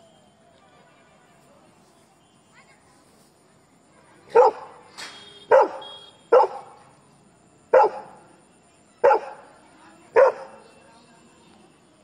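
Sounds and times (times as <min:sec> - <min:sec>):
dog barking: 0:04.3 - 0:04.8, 0:05.5 - 0:06.8, 0:07.7 - 0:08.2, 0:09.0 - 0:09.4, 0:10.2 - 0:10.6.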